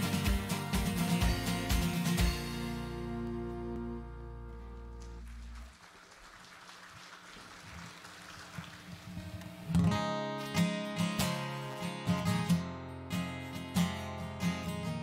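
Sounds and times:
acoustic guitar strumming: 0.0 - 5.5, 9.2 - 15.0.

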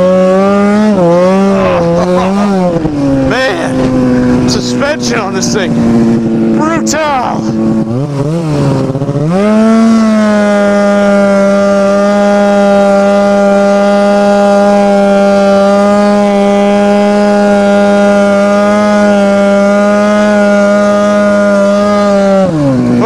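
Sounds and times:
snowmobile engine revving high: 0.0 - 23.0.

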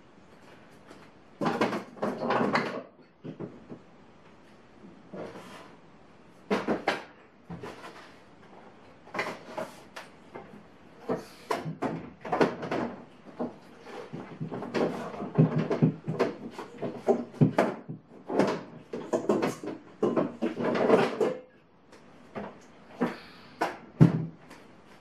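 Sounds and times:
kitchen clatter knocks and clicks: 0.8 - 3.9, 6.5 - 21.6.

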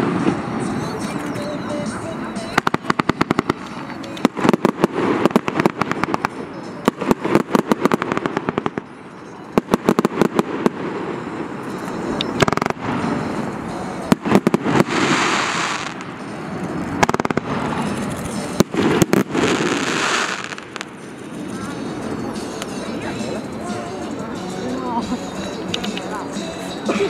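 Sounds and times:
steady rushing noise: 0.0 - 27.0
fireworks crackling pops: 2.4 - 8.9, 9.6 - 13.4, 14.1 - 21.4, 25.7 - 26.2.

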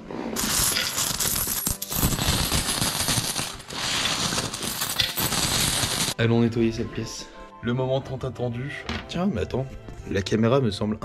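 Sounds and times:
coins clattering and clinking: 0.4 - 6.2.

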